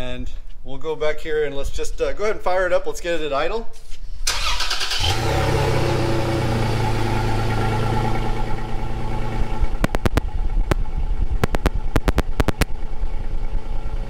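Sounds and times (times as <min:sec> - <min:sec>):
car engine idling: 0:04.3 - 0:14.0
sharp clicks: 0:09.8 - 0:12.8.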